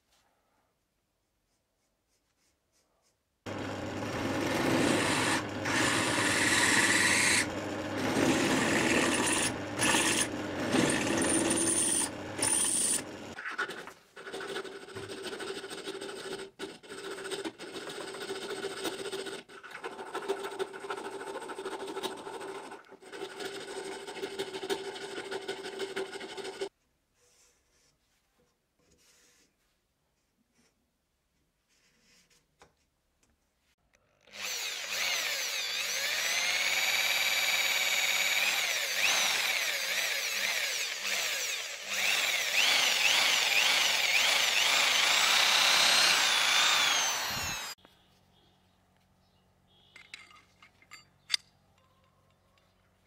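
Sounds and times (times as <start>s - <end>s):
drill press boring metal: 3.5s - 13.4s, 34.3s - 47.8s
hand file rasping: 3.5s - 26.7s, 34.4s - 47.8s.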